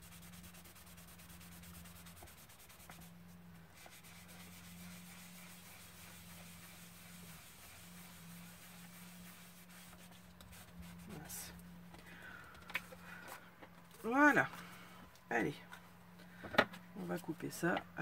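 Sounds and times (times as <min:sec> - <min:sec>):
hand rubbing over paper: 0:00.0 - 0:11.6
steady low hum: 0:00.0 - 0:18.0.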